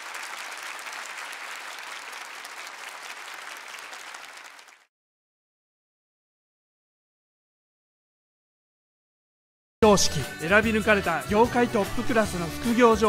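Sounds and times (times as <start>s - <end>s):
audience applauding: 0.0s - 4.9s, 12.0s - 13.0s.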